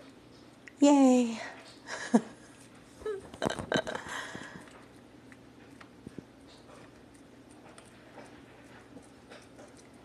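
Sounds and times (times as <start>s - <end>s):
dog licking and chewing: 4.4s - 10.0s.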